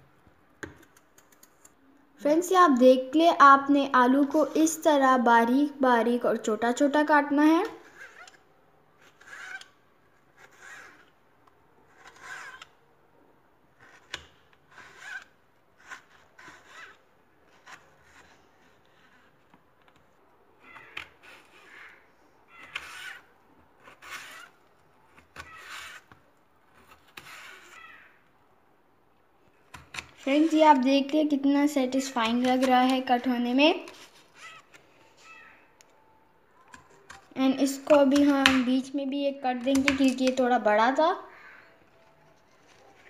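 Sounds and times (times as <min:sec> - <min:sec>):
knife cutting on plastic board: 0:11.9 - 0:12.8, 0:22.6 - 0:27.9.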